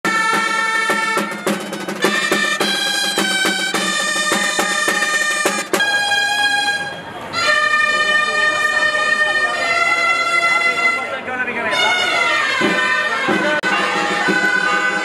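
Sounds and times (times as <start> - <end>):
drum beat: 0.0 - 6.5
shawms playing melody: 0.0 - 15.0.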